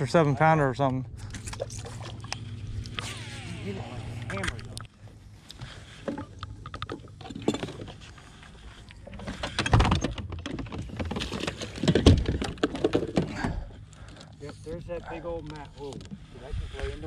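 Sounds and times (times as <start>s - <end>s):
fishing gear clattering: 5.9s - 14.5s.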